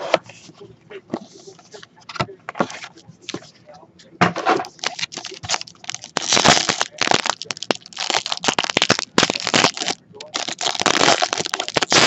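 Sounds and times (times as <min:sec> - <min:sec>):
wrapper being torn and crinkled: 0:04.7 - 0:12.0.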